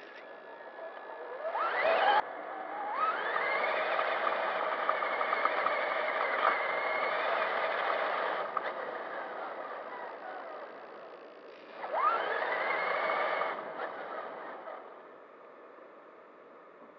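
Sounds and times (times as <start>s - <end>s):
electric motor whining: 2.8s - 15.2s.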